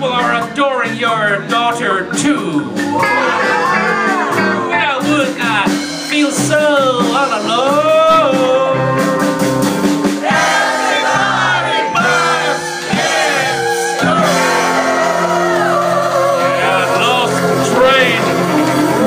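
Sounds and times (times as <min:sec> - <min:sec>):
live rock band playing: 0:00.0 - 0:19.0
man singing loudly: 0:07.0 - 0:08.9, 0:16.4 - 0:18.3.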